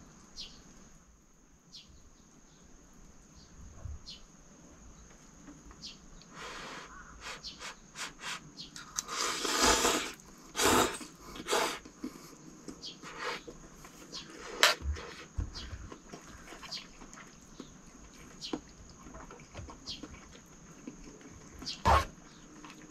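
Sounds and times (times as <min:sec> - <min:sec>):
person slurping noodles: 0:08.0 - 0:12.1.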